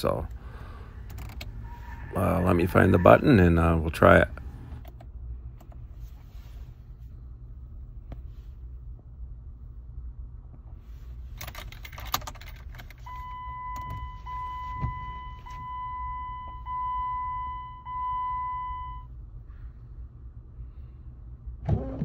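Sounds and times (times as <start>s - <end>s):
vehicle cabin rumble: 0.0s - 22.0s
rattling and clicks: 11.3s - 13.1s.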